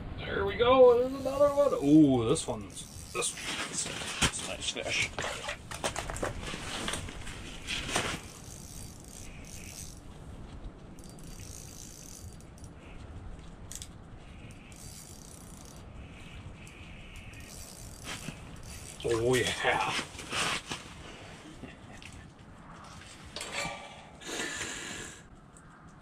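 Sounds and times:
fishing reel ratcheting clicks: 2.6 - 3.2, 8.3 - 10.0, 11.0 - 12.8, 13.7 - 13.9, 14.5 - 15.8, 16.6 - 19.4
soft handling sounds: 2.9 - 23.8.

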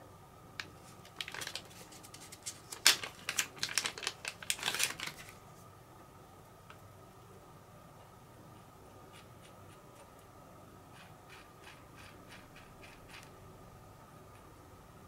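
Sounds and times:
plastic bag crinkling: 0.9 - 5.4.

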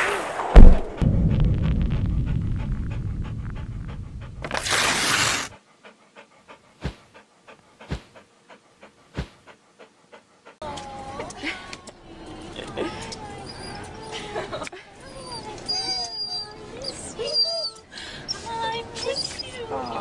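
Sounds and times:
sharp hit: 0.0 - 5.5
whoosh: 0.0 - 5.5
deeper thumps: 0.2 - 4.6
dog panting: 2.3 - 4.5, 5.5 - 10.6.

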